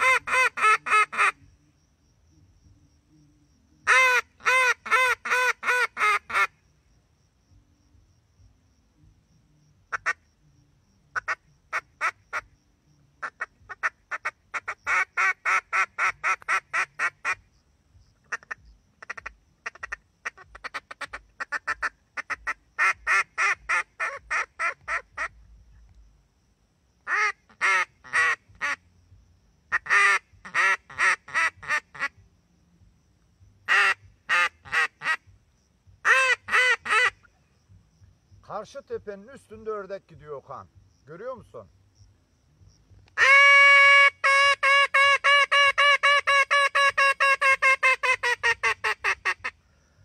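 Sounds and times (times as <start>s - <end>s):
duck call quacks: 0.0s - 1.4s, 3.9s - 6.5s, 13.2s - 17.4s, 18.3s - 25.3s, 27.1s - 28.8s, 29.7s - 32.1s, 33.7s - 35.2s, 36.0s - 37.3s, 43.2s - 49.6s.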